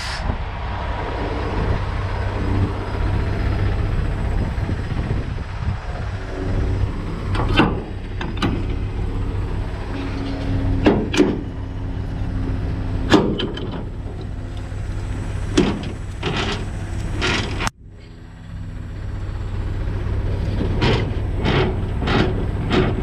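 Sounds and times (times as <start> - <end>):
diesel truck engine idling: 0.0 - 23.0.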